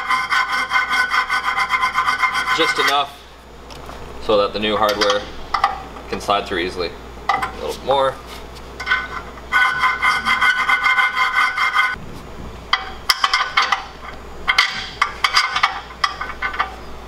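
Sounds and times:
hand file rasping on steel: 0.0 - 3.1, 9.5 - 12.0.

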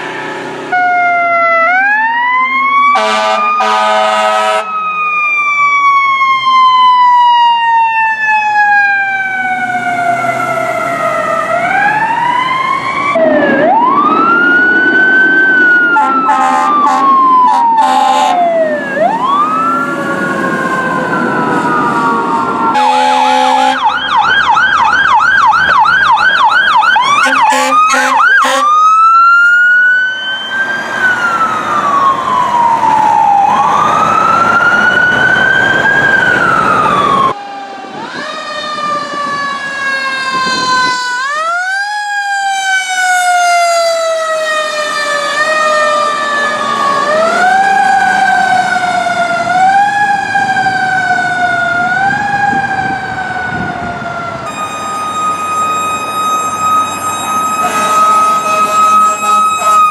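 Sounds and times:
fire truck sirens wailing: 0.0 - 59.9
truck engines rumbling: 0.0 - 59.9
air horn blasts: 2.9 - 4.7, 16.0 - 18.4, 22.7 - 23.9, 27.1 - 28.8, 54.5 - 59.9.

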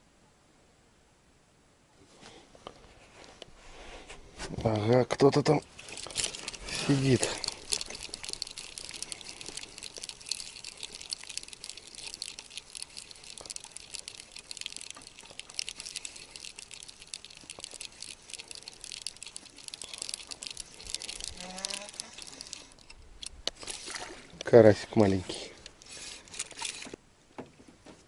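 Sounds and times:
dense fine crackle: 3.0 - 26.9
water splashing and dripping: 5.7 - 24.6.

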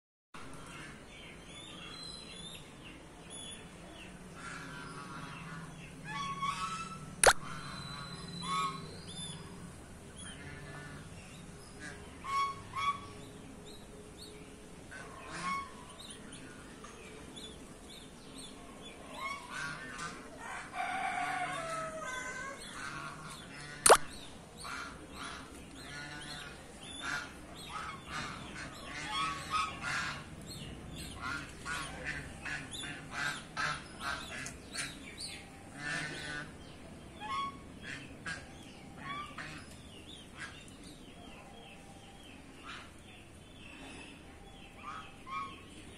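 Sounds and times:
geese honking: 4.4 - 9.0, 11.8 - 13.2, 14.9 - 15.9, 24.6 - 30.4, 35.7 - 36.6, 37.2 - 39.7, 44.8 - 45.8
sharp click: 7.2 - 7.4, 23.9 - 24.1.

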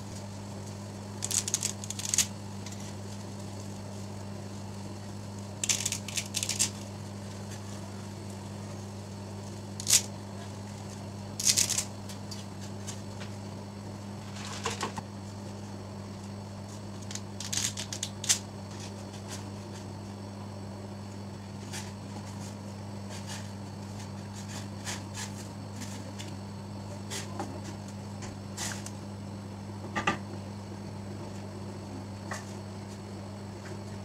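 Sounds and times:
water boiling in pot: 0.0 - 14.7
steady low hum: 0.0 - 34.0
small clicks and crackles: 0.1 - 7.8, 9.7 - 13.0, 17.0 - 18.9.

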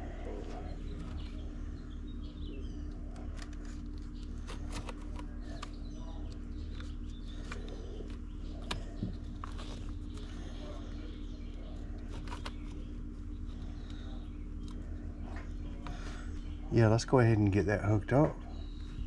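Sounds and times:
birds chirping faintly: 0.0 - 19.0
low hum: 0.0 - 19.0.

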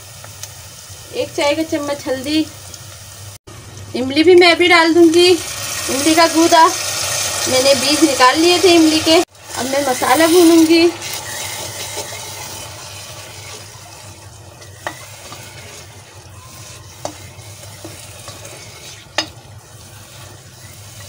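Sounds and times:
masala sizzling in hot oil: 0.0 - 21.0
spoon stirring in pan: 9.7 - 21.0.

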